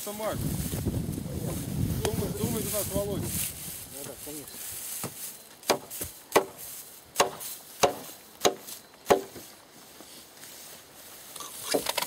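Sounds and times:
hatchet chopping wood: 0:05.6 - 0:06.6, 0:07.2 - 0:09.4.

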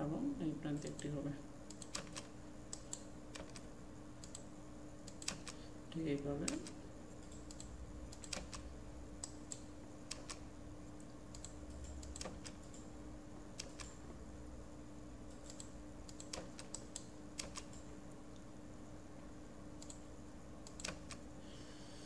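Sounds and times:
faint steady hum: 0:00.0 - 0:22.0
computer mouse clicks: 0:01.7 - 0:03.6, 0:04.2 - 0:04.4, 0:05.0 - 0:05.6, 0:06.5 - 0:10.4, 0:11.3 - 0:12.9, 0:13.6 - 0:14.0, 0:15.3 - 0:17.9, 0:19.8 - 0:20.0, 0:20.6 - 0:21.2
keyboard keys clicking: 0:09.2 - 0:10.4, 0:15.3 - 0:17.8, 0:20.7 - 0:21.2.

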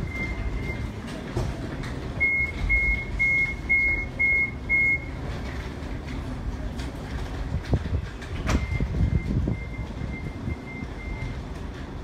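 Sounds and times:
tram door warning beeps: 0:00.0 - 0:05.4, 0:07.9 - 0:12.0.

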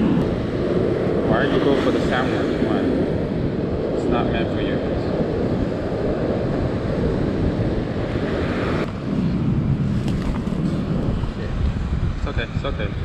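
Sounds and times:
surf washing on beach: 0:00.0 - 0:13.0
wind rumbling on microphone: 0:00.0 - 0:13.0.

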